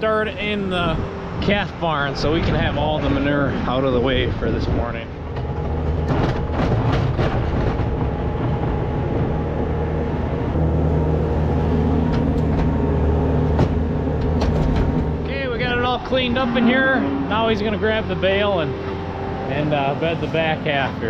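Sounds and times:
farm machine engine running: 0.0 - 21.0
clanks and knocks: 5.1 - 9.8, 12.0 - 15.3.

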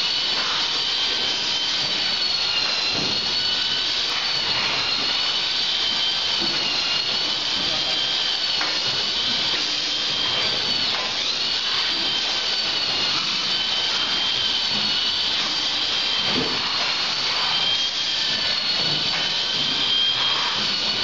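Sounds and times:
high machine whines: 0.0 - 21.0
packing machine whirring: 0.0 - 21.0.

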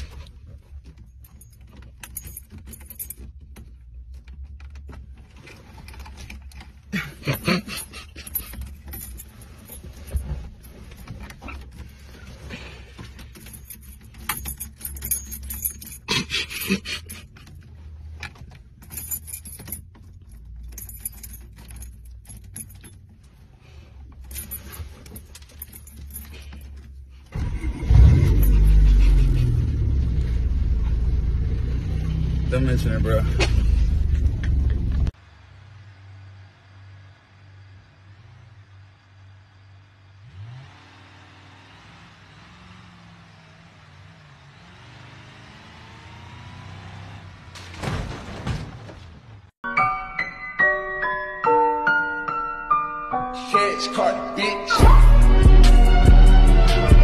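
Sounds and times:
car keys jangling: 0.0 - 29.8
deep engine rumble: 27.4 - 40.2.

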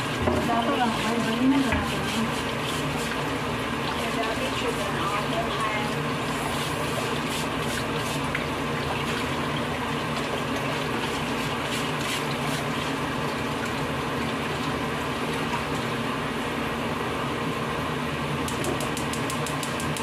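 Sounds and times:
water running in a sink: 0.0 - 20.0
scratchy scrubbing strokes: 0.4 - 3.2.

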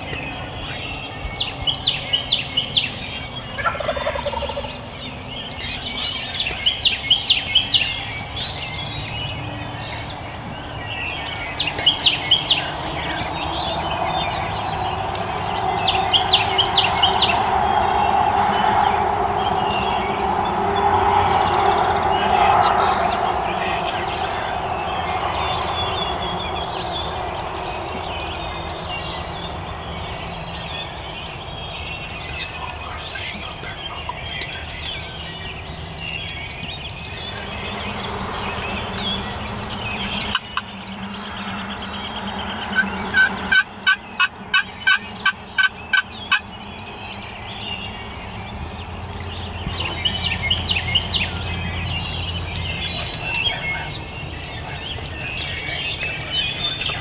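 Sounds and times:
wild turkey yelps: 3.6 - 4.7, 42.7 - 46.4
turkey gobbling: 3.6 - 4.8, 42.7 - 46.4.

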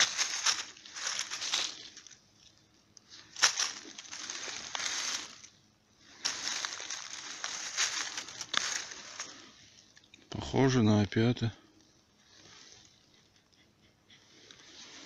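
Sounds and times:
dry leaves crackling and rustling: 0.0 - 9.6.

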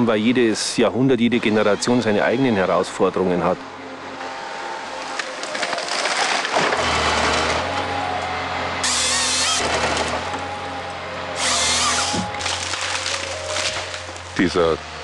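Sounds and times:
harvester engine and hydraulics: 0.0 - 15.0
high-pitched saw cutting: 8.8 - 10.6, 11.4 - 12.6.

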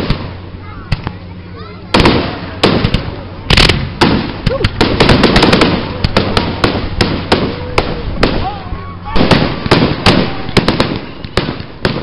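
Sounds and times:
fireworks bursting: 0.0 - 12.0.

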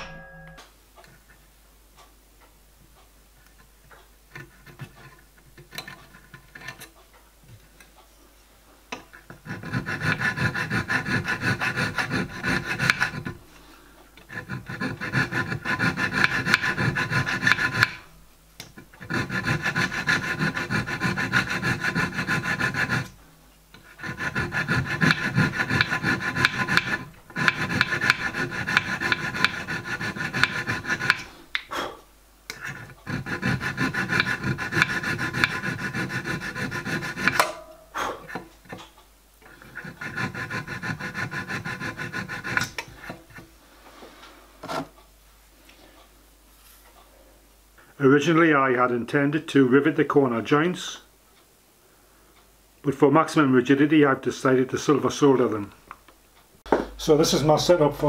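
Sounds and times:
file rasping on metal: 4.3 - 7.0, 9.0 - 13.6, 14.2 - 18.2, 18.8 - 31.5, 32.5 - 43.5.

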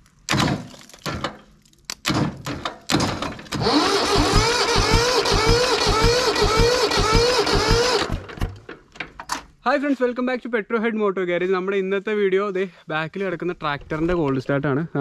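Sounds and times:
starter motor cranking diesel engine: 3.5 - 8.8.

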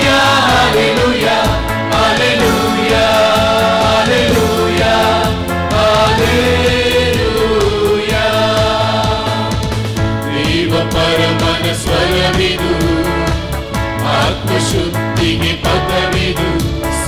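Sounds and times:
choir singing a hymn: 0.0 - 17.0.

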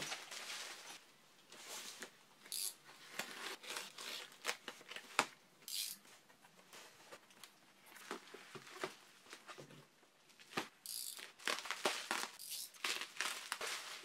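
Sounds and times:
bubble wrap crinkling: 10.4 - 14.0.

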